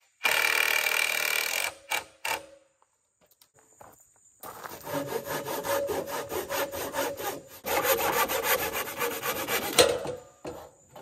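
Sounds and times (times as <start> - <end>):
handsaw cutting wood: 4.8 - 9.8.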